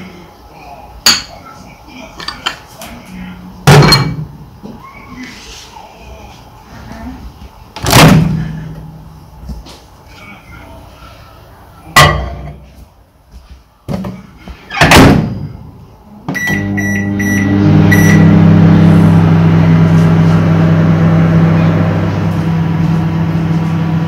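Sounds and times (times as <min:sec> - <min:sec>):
microwave oven humming: 0:16.0 - 0:24.0.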